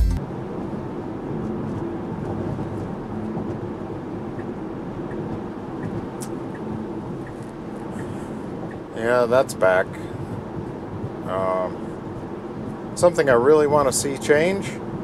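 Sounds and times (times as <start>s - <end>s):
tyre and road noise: 0.0s - 15.0s
turn-signal ticks: 4.3s - 8.9s.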